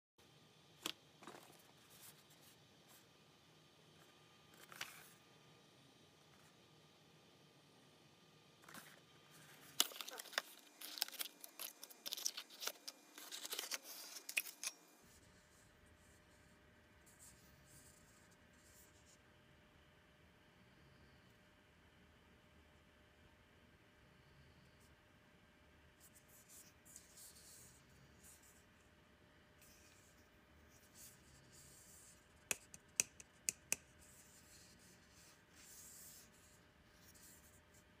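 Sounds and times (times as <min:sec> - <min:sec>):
cardboard packaging rustling: 0:08.6 - 0:14.7.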